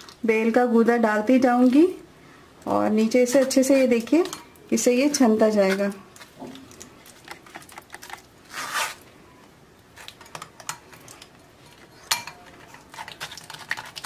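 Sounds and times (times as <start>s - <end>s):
spoon scraping pulp through strainer: 7.1s - 9.0s.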